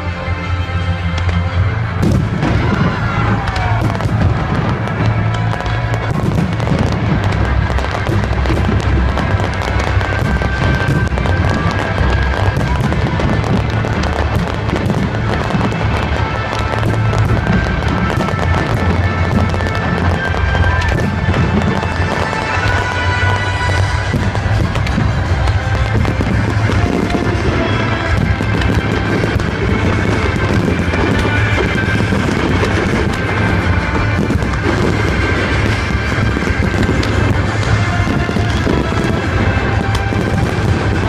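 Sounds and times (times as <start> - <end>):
fireworks popping and crackling: 0.0 - 41.0
loud music with heavy bass: 0.0 - 41.0.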